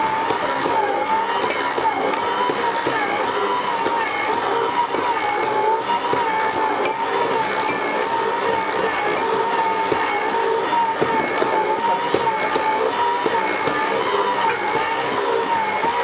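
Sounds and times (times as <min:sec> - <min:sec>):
stand mixer motor whine: 0:00.0 - 0:16.0.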